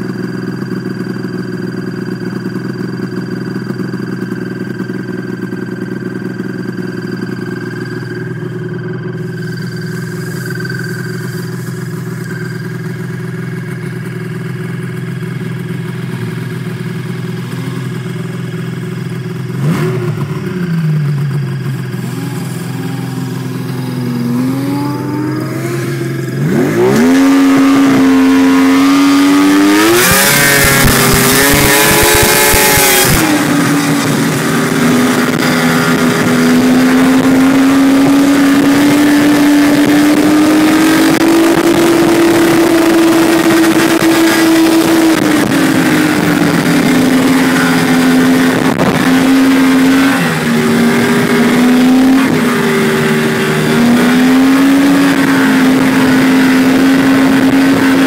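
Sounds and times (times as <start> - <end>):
snowmobile engines idling: 0.0 - 58.0
loud hissing: 9.2 - 14.0
snowmobile revving: 9.2 - 58.0.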